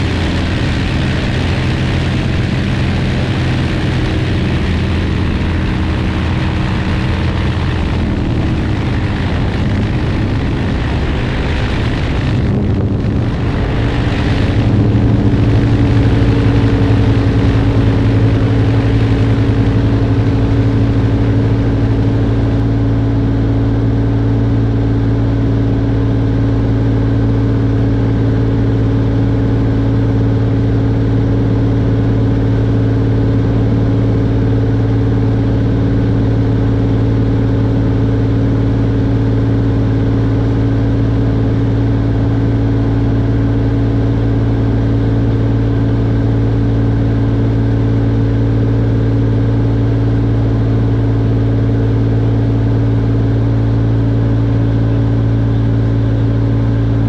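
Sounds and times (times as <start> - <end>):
propeller aircraft engine drone: 0.0 - 57.0
wind rushing: 3.9 - 20.2.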